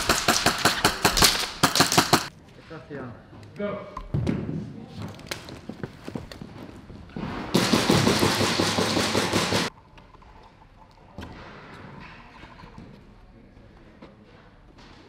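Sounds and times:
airsoft gun full-auto burst: 0.0 - 2.3, 7.6 - 9.7.

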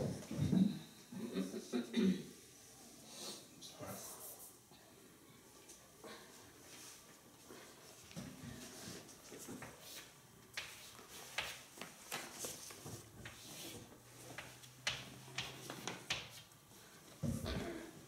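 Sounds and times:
chalk tapping and scratching: 9.8 - 16.6.

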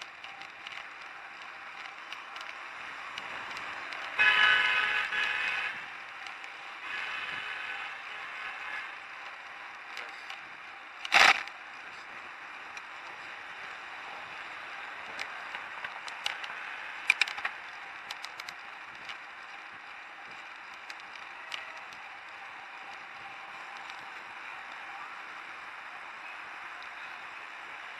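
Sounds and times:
bike clicks and rattles: 0.0 - 4.2, 5.9 - 6.7, 9.0 - 24.8
wind and tyre noise: 0.0 - 27.9.

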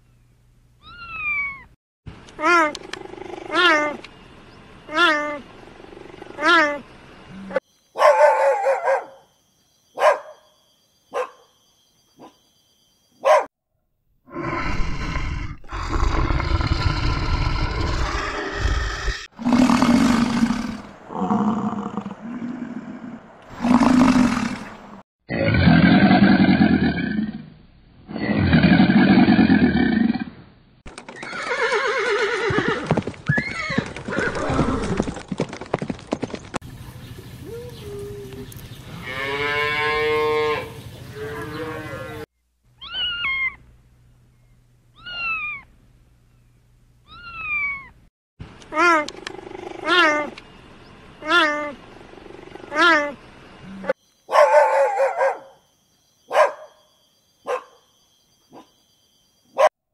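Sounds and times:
animal calls: 0.8 - 1.8, 2.4 - 4.1, 4.9 - 9.2, 40.5 - 43.6, 45.0 - 45.7, 47.1 - 48.0, 48.7 - 50.4, 51.2 - 55.6.

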